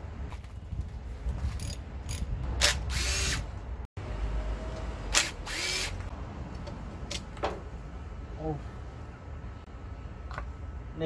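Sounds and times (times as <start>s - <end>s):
cordless drill whirring: 2.6s - 3.4s, 5.2s - 6.0s.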